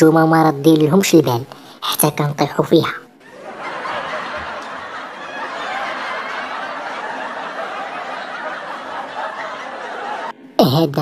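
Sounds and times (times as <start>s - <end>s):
crowd laughing: 3.2s - 10.4s.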